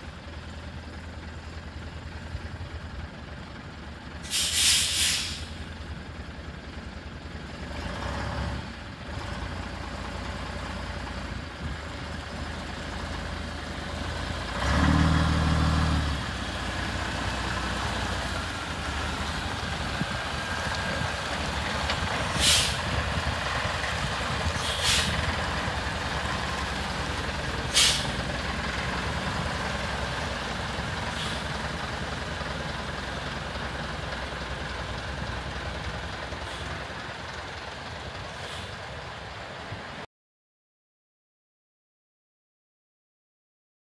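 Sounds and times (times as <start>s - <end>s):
truck diesel engine running: 0.0s - 40.0s
air brakes hissing: 4.2s - 5.6s, 22.3s - 23.0s, 24.5s - 25.3s, 27.7s - 28.3s, 31.1s - 31.6s, 36.4s - 36.8s, 38.4s - 38.8s.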